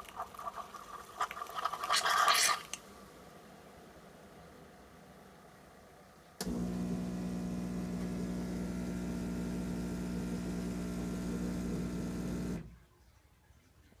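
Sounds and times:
coffee brewer pump humming: 0:06.4 - 0:12.7.

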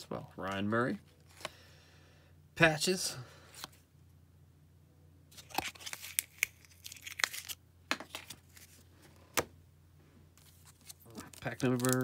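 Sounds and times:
foil wrapper crinkling: 0:05.4 - 0:08.7, 0:10.4 - 0:12.0
cards tapping and clicking: 0:10.8 - 0:12.0.

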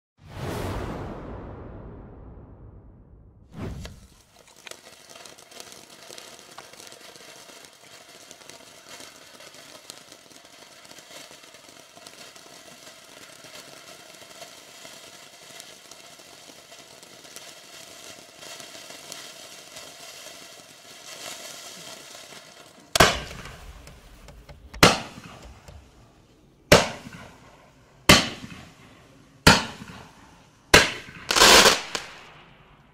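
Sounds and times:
firework shots banging: 0:03.5 - 0:04.9, 0:22.8 - 0:32.8
firework fountain hissing: 0:03.6 - 0:32.9.

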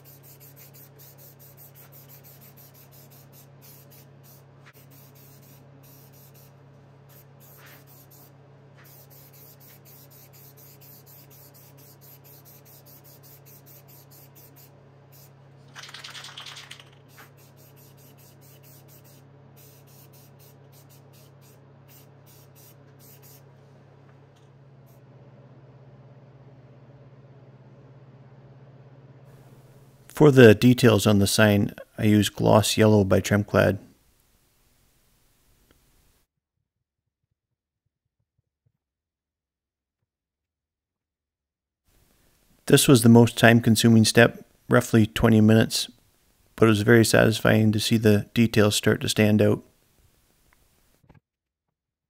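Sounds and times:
spray paint can hissing: 0:00.0 - 0:23.4
steady low hum: 0:00.0 - 0:36.3.

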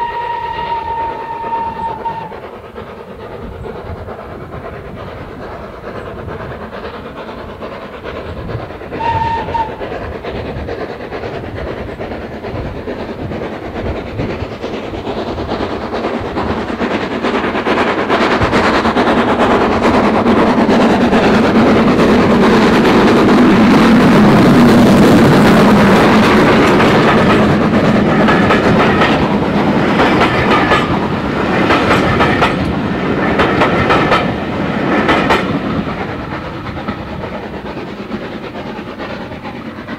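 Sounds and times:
steam whistle toot: 0:00.0 - 0:02.4, 0:09.0 - 0:09.8
steam locomotive passing at speed: 0:00.0 - 0:39.9
train wheels clacking over rail joints: 0:00.1 - 0:39.9.

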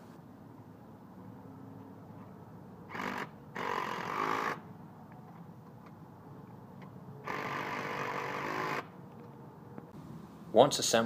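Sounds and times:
cordless drill driving a nut: 0:02.9 - 0:04.6, 0:07.2 - 0:08.9.

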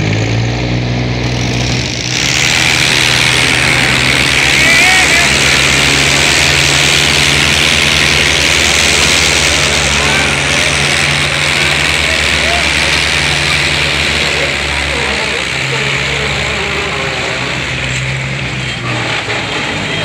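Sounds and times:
tractor engines under load: 0:00.0 - 0:20.0.

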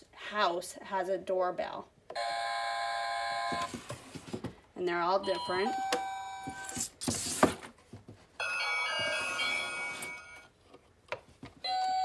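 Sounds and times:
electronic doorbell chime: 0:05.2 - 0:06.7, 0:08.4 - 0:10.5, 0:11.6 - 0:12.0.

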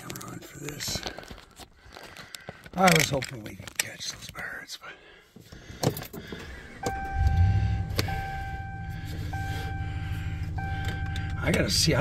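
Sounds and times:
truck engine starting and idling: 0:06.3 - 0:12.0
dashboard warning chime: 0:06.8 - 0:12.0.

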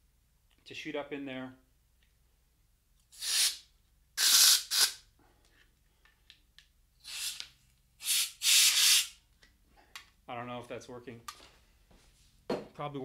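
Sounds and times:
compressed air hissing bursts: 0:03.2 - 0:03.6, 0:04.2 - 0:05.0, 0:07.0 - 0:07.4, 0:08.0 - 0:09.2.

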